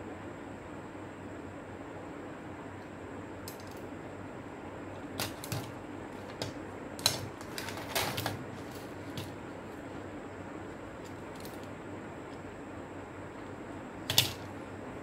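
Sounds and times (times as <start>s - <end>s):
small plastic parts clattering: 5.2s - 9.4s, 14.1s - 14.5s.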